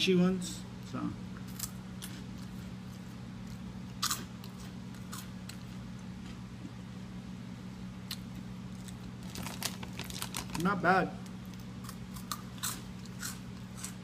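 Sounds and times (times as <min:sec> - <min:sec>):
steady low hum: 0:00.0 - 0:14.0
crunchy snack chewing: 0:01.4 - 0:06.4, 0:08.1 - 0:10.6, 0:11.4 - 0:14.0.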